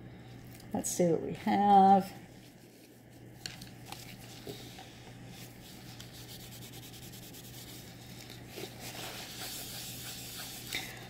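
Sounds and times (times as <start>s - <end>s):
paper towel rubbing: 5.3s - 10.7s.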